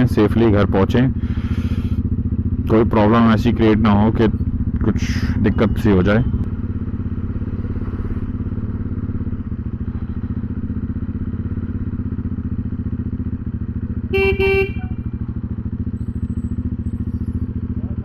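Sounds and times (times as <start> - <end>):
motorcycle engine exhaust beat: 0.0 - 18.0
horn beeps: 14.0 - 15.2.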